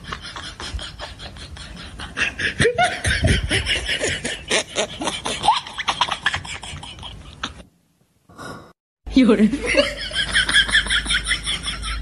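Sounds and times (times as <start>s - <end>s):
person snickering and chuckling: 0.0s - 7.7s.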